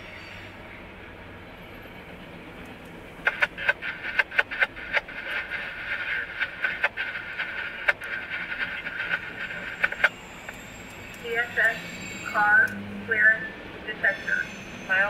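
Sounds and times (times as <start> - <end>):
radio static with crackling pops: 3.2 - 10.6.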